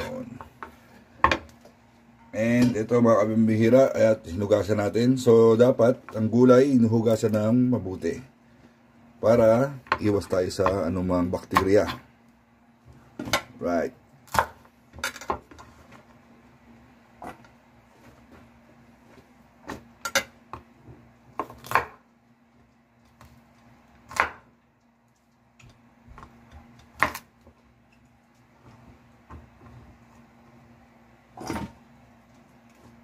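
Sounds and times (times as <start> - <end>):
faint steady hum: 0.0 - 33.0
knife chopping on wooden board: 21.4 - 22.0, 24.1 - 24.5.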